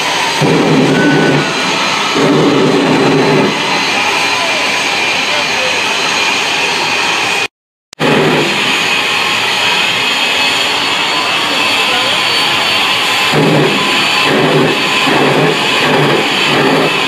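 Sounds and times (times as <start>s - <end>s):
jet engine roaring: 0.0s - 17.0s.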